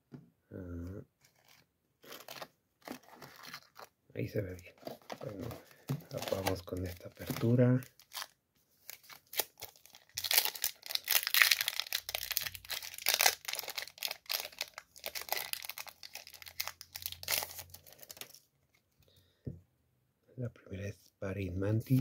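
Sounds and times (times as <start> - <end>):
foil wrapper crinkling and tearing: 1.3 - 3.9, 4.8 - 18.5.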